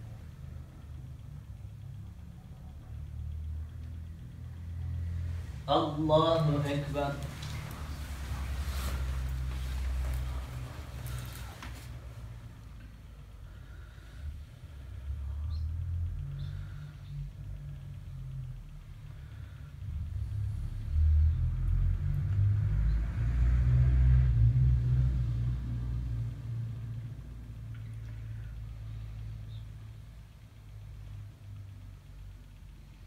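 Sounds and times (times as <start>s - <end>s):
low rumble: 0.0s - 33.0s.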